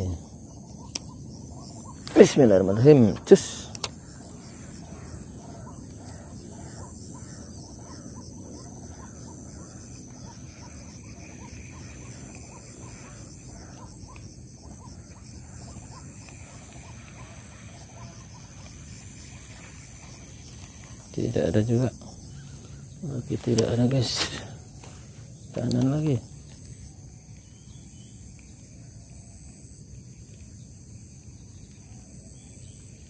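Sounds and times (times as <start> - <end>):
small animal chirping calls: 0.0 - 28.6
high insect drone: 0.0 - 33.0.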